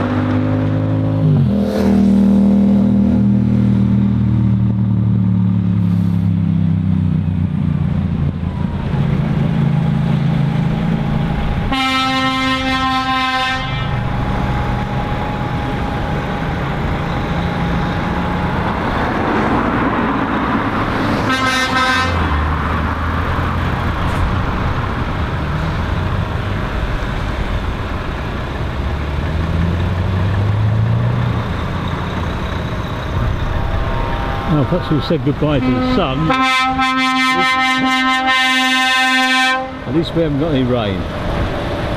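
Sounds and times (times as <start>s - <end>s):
lorry diesel engines driving past: 0.0s - 41.9s
lorry horn blasts: 11.7s - 14.1s, 21.3s - 22.3s, 33.6s - 39.9s.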